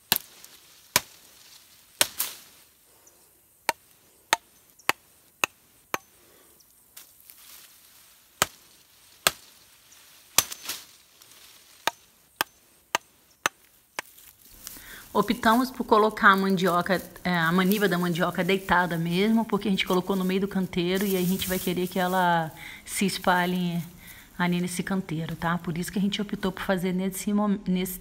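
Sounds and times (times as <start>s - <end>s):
machete chopping a stem: 0.1s - 1.3s, 2.0s - 2.5s, 8.4s - 9.6s, 10.3s - 10.9s, 11.8s - 14.3s.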